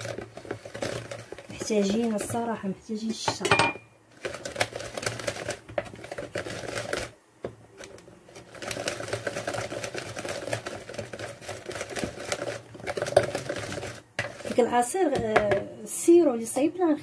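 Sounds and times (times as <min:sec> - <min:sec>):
whisk rattling in plastic bowl: 0:00.0 - 0:03.5, 0:04.1 - 0:07.2, 0:07.8 - 0:15.6.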